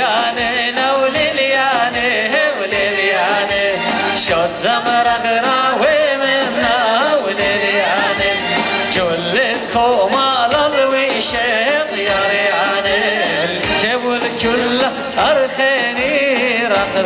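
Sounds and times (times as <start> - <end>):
man singing: 0.0 - 17.0.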